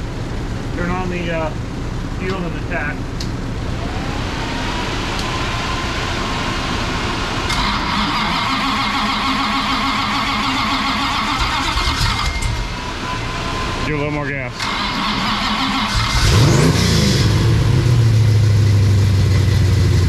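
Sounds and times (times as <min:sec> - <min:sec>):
faint whine: 0:00.0 - 0:14.6
starter cranking engine: 0:07.5 - 0:12.6, 0:14.6 - 0:17.0.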